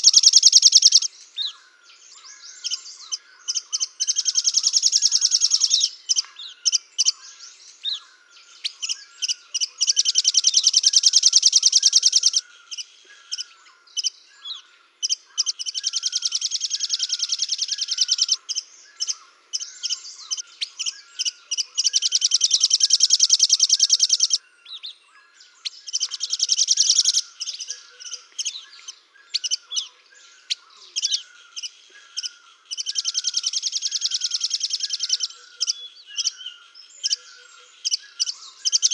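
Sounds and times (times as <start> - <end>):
soft low bird chirp: 0.0 - 38.9
songbirds trilling and chirping: 0.0 - 38.9.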